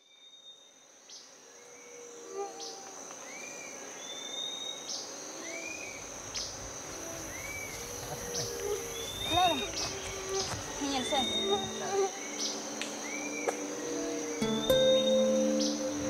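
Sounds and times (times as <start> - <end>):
high insect trill: 1.4 - 16.0
birds whistling and chirping: 7.3 - 12.5.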